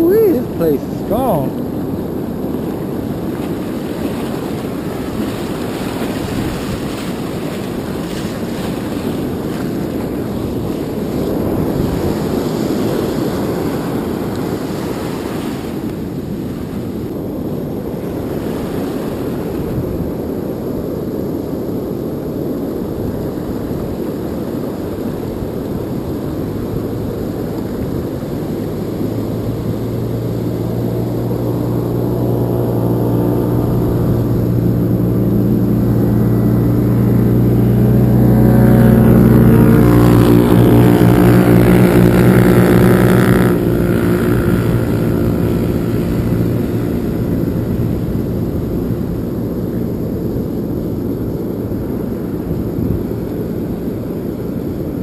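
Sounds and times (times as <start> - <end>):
surf breaking and washing: 0.0 - 55.0
wind buffeting microphone: 0.0 - 55.0
low steady hum: 25.3 - 55.0.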